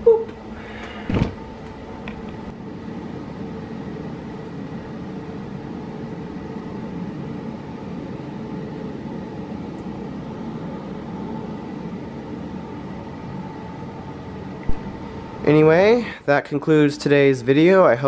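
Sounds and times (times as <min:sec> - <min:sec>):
air conditioning rushing air: 0:00.0 - 0:18.0
faint steady hum: 0:00.0 - 0:18.0.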